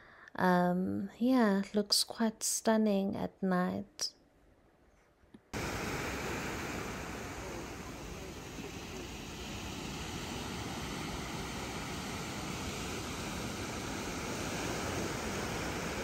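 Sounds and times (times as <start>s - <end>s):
steady rushing outdoor noise: 5.6s - 16.0s.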